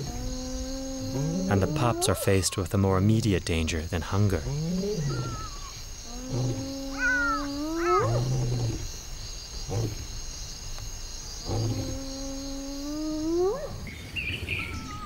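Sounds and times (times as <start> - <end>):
large animal calling: 0.0 - 2.7, 4.4 - 8.8.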